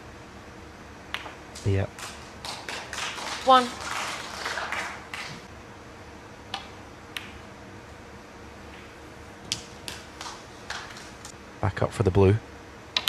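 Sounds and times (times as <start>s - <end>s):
quiet arena hush: 0.0s - 5.6s, 6.6s - 12.5s
snooker balls clicking: 1.1s - 2.9s, 6.5s - 7.4s, 9.5s - 11.3s.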